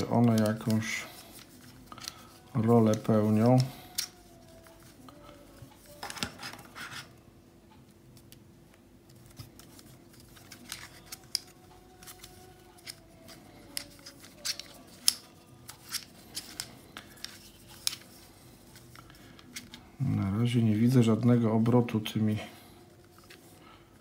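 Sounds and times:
plastic puzzle clicking: 13.7 - 18.0.

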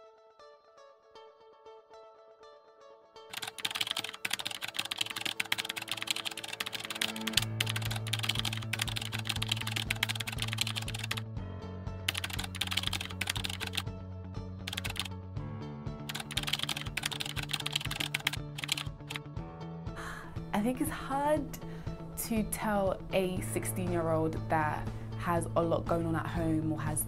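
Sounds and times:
background music with low notes: 0.0 - 27.0
keyboard typing clicks: 3.3 - 11.2, 12.1 - 13.8, 14.7 - 15.1, 16.1 - 19.2.

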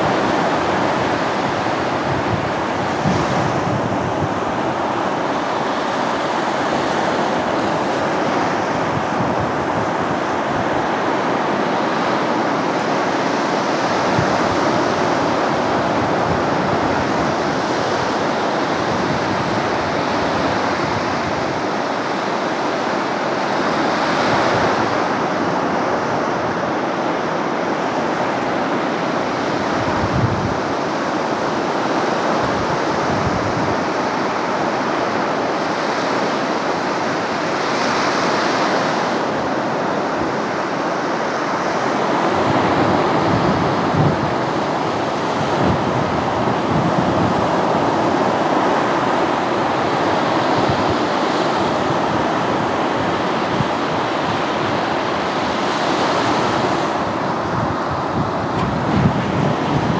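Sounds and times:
waves crashing on beach: 0.0 - 59.9
wind thumps on microphone: 0.8 - 4.6, 56.1 - 59.9.

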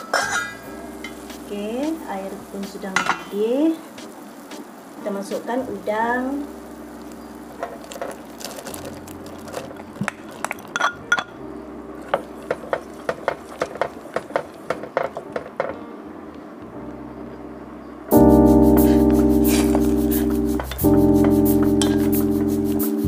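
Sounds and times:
broth bubbling: 6.6 - 11.0, 11.9 - 14.7
wooden spoon tapping bowl and pot: 12.1 - 15.8.

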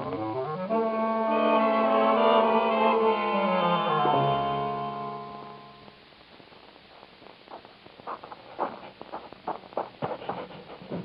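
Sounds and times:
bowed string music: 0.0 - 6.0
footsteps at an even pace: 5.8 - 11.0.

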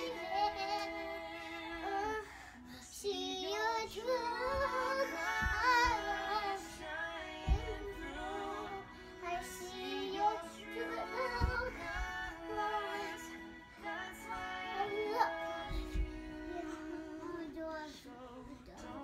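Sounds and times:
high-pitched singing voice: 0.0 - 19.0
low thumps: 3.9 - 13.3, 15.0 - 16.8.

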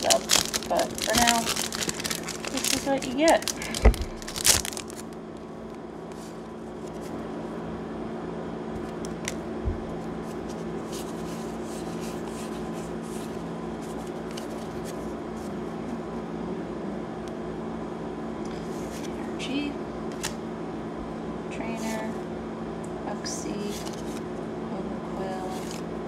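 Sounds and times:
cards sliding and flicking: 20.1 - 20.4, 23.7 - 24.2.

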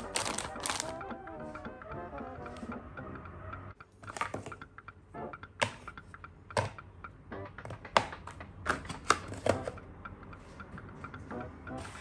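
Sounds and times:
boxes and tubes clattering into basket: 0.0 - 0.9.

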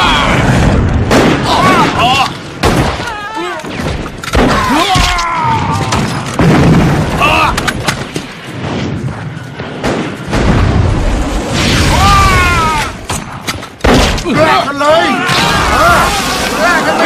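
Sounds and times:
men shouting and screaming: 0.0 - 0.6, 11.9 - 13.1, 14.3 - 17.0
explosion blasts: 0.0 - 3.0, 5.5 - 14.2
gunfire: 1.0 - 2.0.

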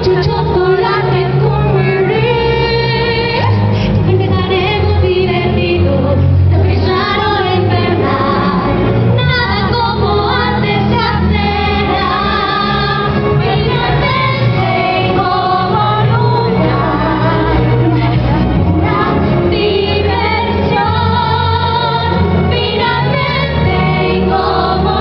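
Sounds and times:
loud backing music: 0.0 - 25.0.

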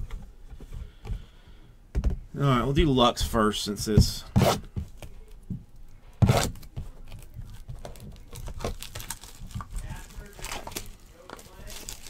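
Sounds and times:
scratching and crinkling: 4.3 - 12.0
wrapping tearing: 6.3 - 12.0.

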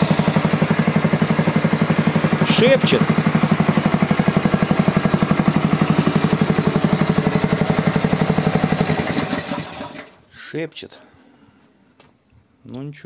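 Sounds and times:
small petrol engine running: 0.0 - 10.2.

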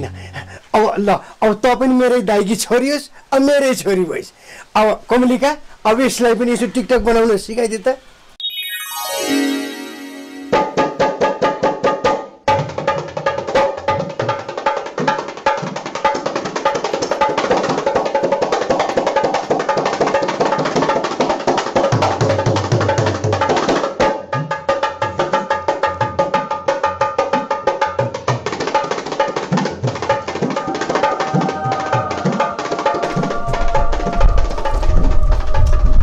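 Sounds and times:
instrumental music with busy percussion: 8.9 - 34.5.

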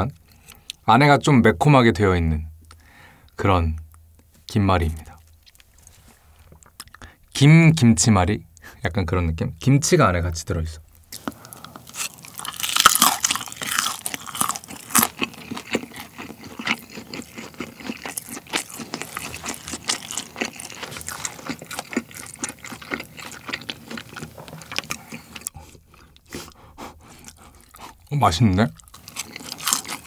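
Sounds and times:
close chewing with crackles: 4.8 - 7.1, 11.1 - 30.0
bite and crunch: 11.1 - 30.0.

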